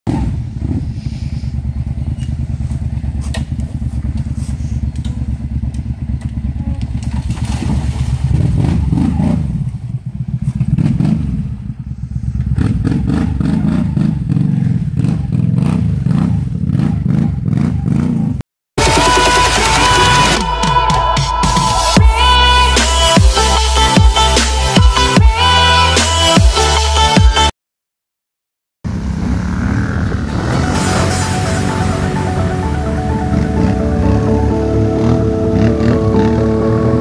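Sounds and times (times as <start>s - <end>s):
quad engines revving: 0.1s - 20.4s, 28.9s - 37.0s.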